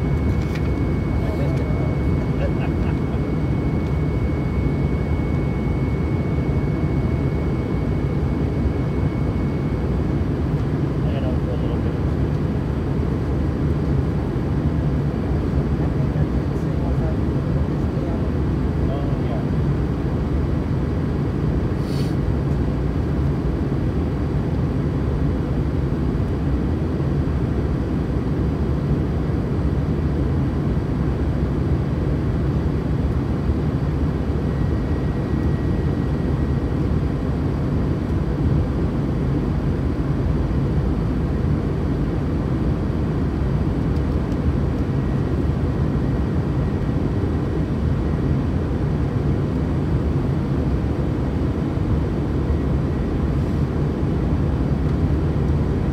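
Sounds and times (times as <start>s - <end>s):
airliner engines rumbling: 0.0s - 55.9s.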